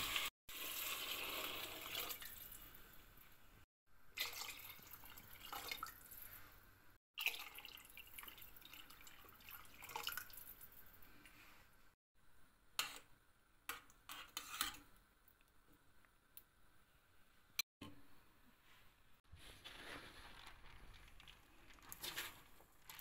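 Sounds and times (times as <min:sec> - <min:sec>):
water pouring into a pot: 0:00.0 - 0:03.2, 0:04.2 - 0:06.4, 0:07.2 - 0:11.0, 0:20.1 - 0:23.0.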